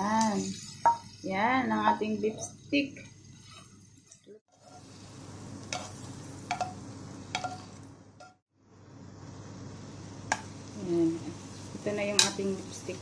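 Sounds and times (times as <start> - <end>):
metal tongs clinking on pan: 12.1 - 12.5.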